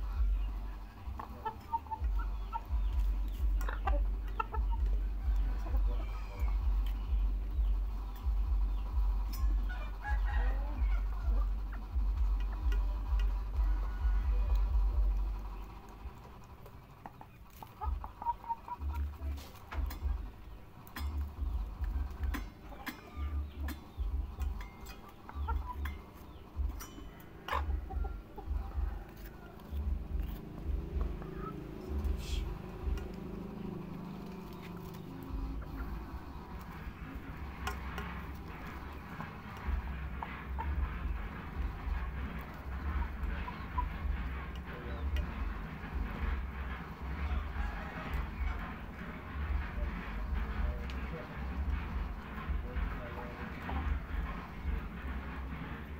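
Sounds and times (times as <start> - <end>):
low rumble: 0.0 - 16.6, 17.8 - 55.9
beaks pecking metal pots: 0.0 - 55.9
chickens clucking softly: 0.0 - 55.9.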